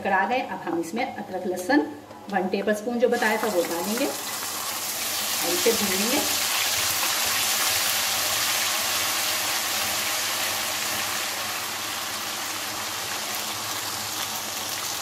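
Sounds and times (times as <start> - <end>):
paste sizzling in hot oil: 3.2 - 15.0.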